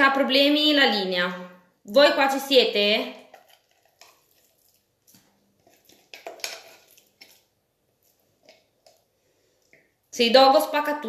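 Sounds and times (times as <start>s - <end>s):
wet squishes: 3.1s - 10.2s
spatula scraping plastic bowl: 3.2s - 9.0s.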